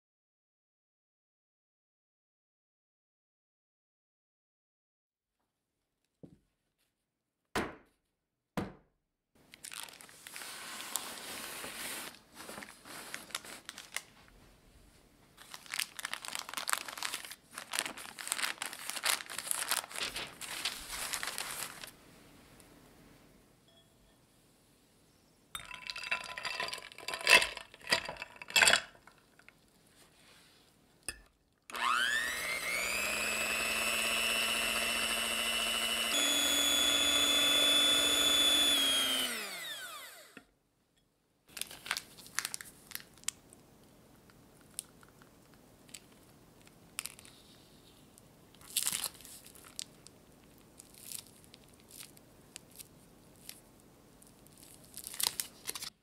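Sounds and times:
glass and ice clinking: 0:25.6 - 0:29.2
electric hand mixer motor: 0:31.7 - 0:40.5.

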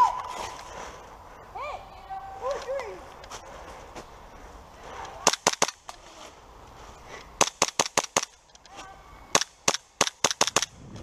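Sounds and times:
airsoft pistol firing: 0:07.4 - 0:08.3, 0:09.3 - 0:10.8.

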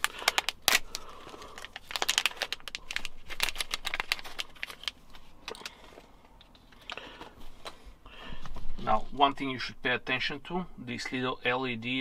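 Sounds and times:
foil pouches crinkling: 0:00.0 - 0:06.1.

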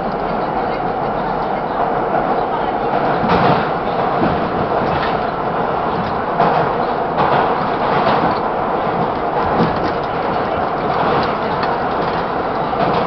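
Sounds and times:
subway train wheels on rails: 0:00.0 - 0:13.0
clacks over rail joints: 0:02.8 - 0:13.0.

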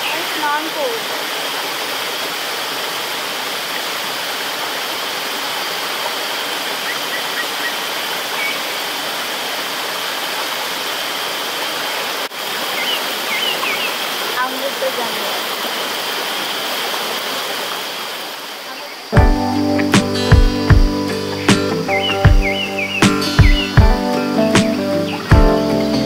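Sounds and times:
stream rushing over rocks: 0:00.0 - 0:19.2.

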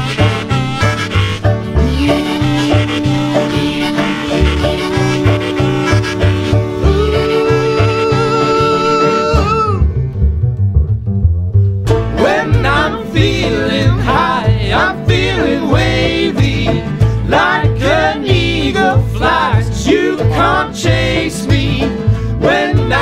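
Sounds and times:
harmonica long note: 0:00.0 - 0:09.9
acoustic guitar: 0:00.0 - 0:23.0
banjo: 0:00.0 - 0:23.0
upright bass: 0:00.0 - 0:23.0
voices singing: 0:01.6 - 0:09.8, 0:12.1 - 0:23.0.

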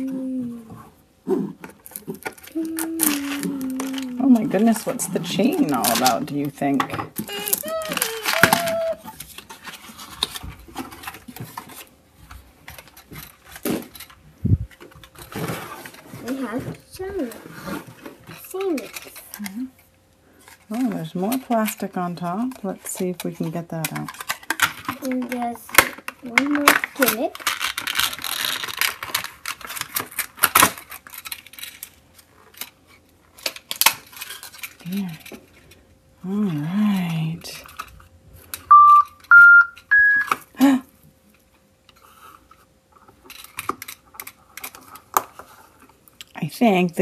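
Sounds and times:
packaging rustling: 0:01.8 - 0:06.3, 0:07.2 - 0:14.2, 0:26.2 - 0:35.6
plastic toy parts clicking: 0:01.9 - 0:04.8, 0:05.6 - 0:09.1.

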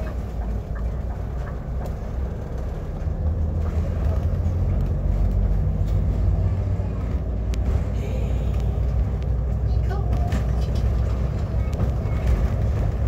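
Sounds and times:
bus engine and road noise: 0:00.0 - 0:13.0.

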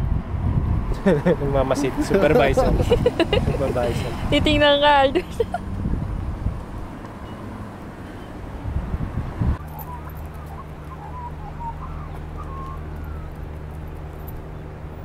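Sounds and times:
magpies warbling: 0:09.6 - 0:14.0.

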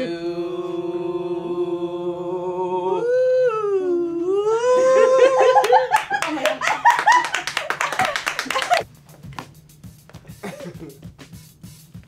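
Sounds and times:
person singing a cappella: 0:00.0 - 0:05.6
sharp claps: 0:05.6 - 0:10.2.

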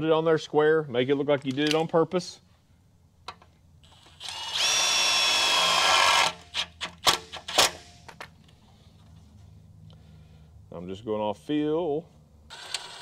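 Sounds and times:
cordless drill motor whining: 0:03.8 - 0:06.5, 0:12.5 - 0:13.0.

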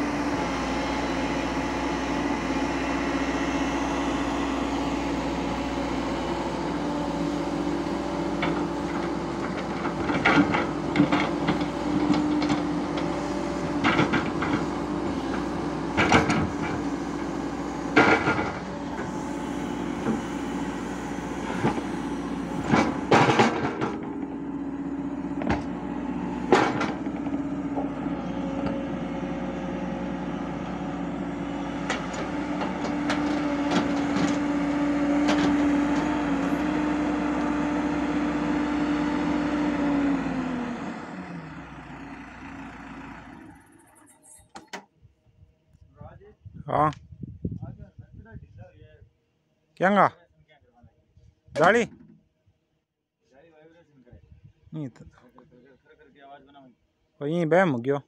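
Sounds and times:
diesel engines running: 0:00.0 - 0:44.9.

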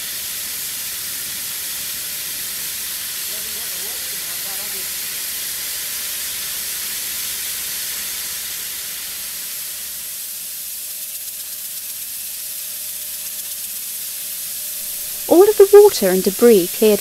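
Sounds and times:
high-pressure water jet hissing: 0:00.0 - 0:12.1.

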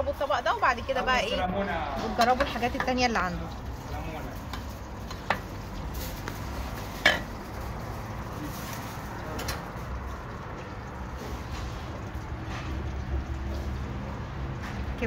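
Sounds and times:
ladle clinking on metal pots: 0:01.9 - 0:13.6.

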